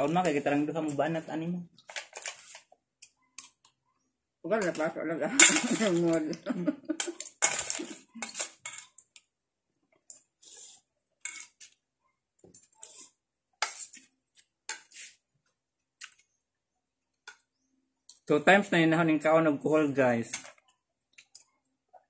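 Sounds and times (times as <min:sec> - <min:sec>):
metal spoon scraping steel bowl: 0:04.6 - 0:06.3, 0:07.0 - 0:09.0, 0:10.4 - 0:11.8, 0:12.7 - 0:14.1.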